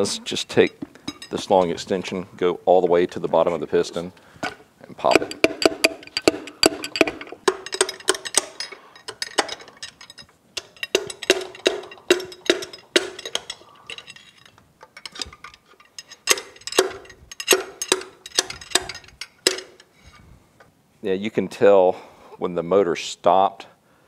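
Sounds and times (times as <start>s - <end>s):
metal bar striking pistons: 5.0s - 19.9s.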